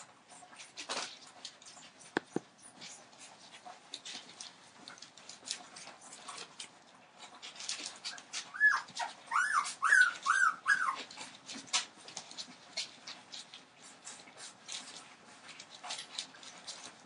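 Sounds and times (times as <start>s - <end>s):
puppies whimpering: 7.8s - 11.6s.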